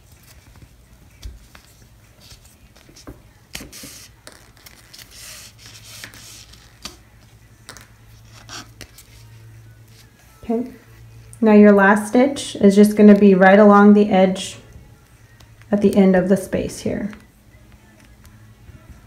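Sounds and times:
ribbon rustling: 0.0s - 11.3s.

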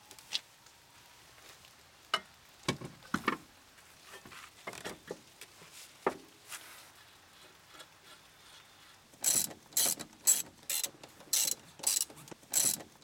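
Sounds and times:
ratchet wrench clicking: 9.2s - 12.9s.

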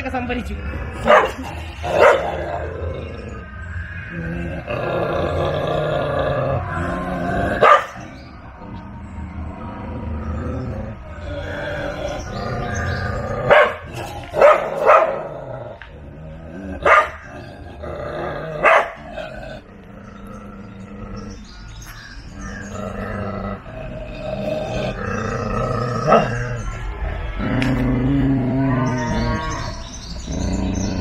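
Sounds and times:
dog growling: 0.6s - 31.0s.

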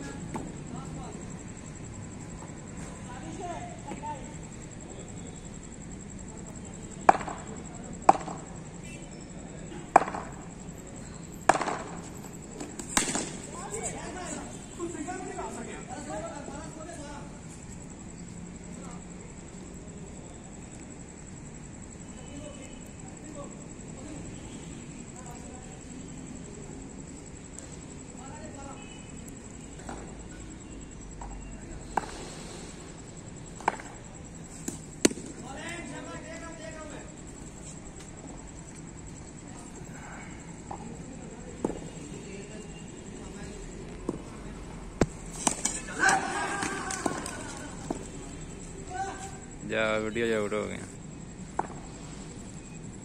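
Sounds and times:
low steady background noise: 0.0s - 53.0s
cricket bat tapping on concrete: 7.1s - 7.5s, 9.9s - 10.4s, 11.5s - 12.0s, 33.6s - 34.0s, 51.6s - 51.8s.

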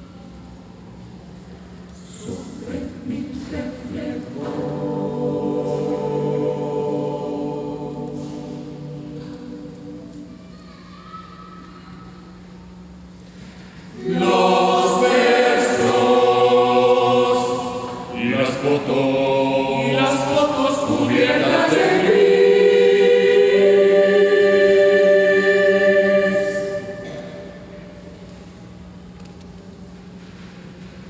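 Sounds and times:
choir singing a cappella: 2.0s - 10.4s, 13.9s - 28.0s.

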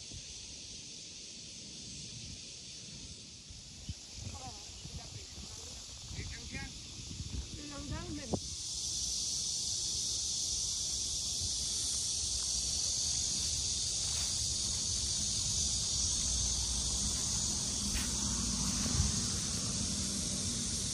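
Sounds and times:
insects droning: 0.0s - 20.9s
low rumble: 14.7s - 20.9s.

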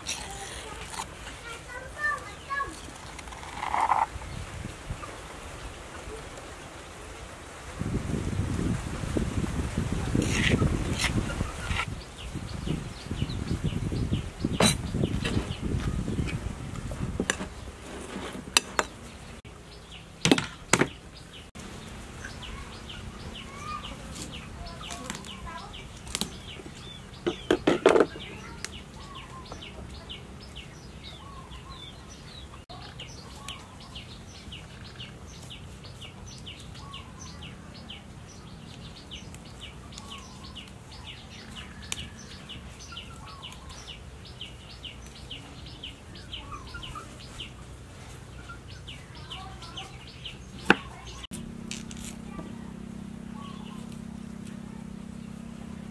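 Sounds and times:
faint bird calls: 52.1s - 55.5s.

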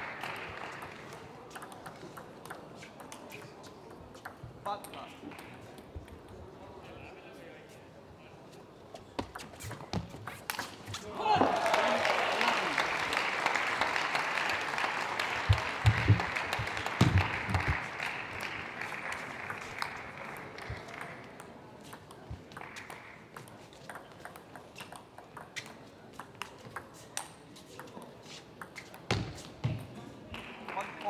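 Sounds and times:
audience applause: 0.0s - 1.0s, 11.2s - 21.2s, 30.4s - 31.0s.

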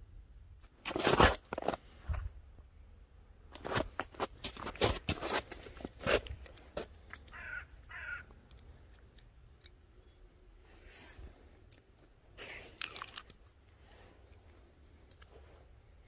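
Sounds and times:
metal parts clicking and knocking: 5.0s - 10.4s, 11.6s - 15.4s
bird calling: 7.3s - 8.3s.

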